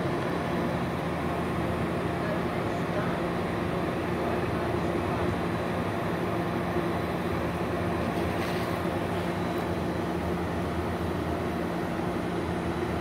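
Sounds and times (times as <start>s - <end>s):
train humming: 0.0s - 13.0s.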